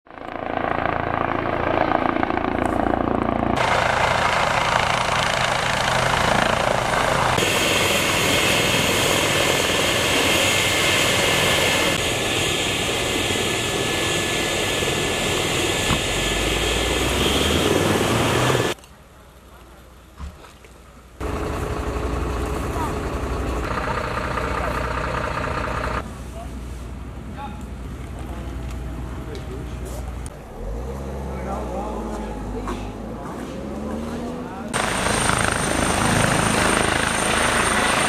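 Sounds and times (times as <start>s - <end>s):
helicopter rotors and turbines: 0.1s - 18.8s, 21.2s - 26.0s, 31.4s - 38.0s.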